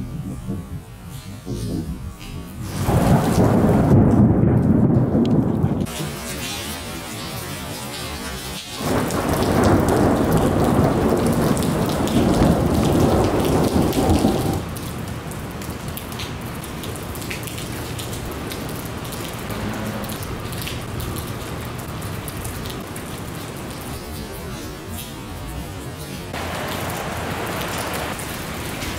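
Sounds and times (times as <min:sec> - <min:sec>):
thunder rumbling: 0:00.0 - 0:23.0
heavy rain: 0:02.2 - 0:28.9.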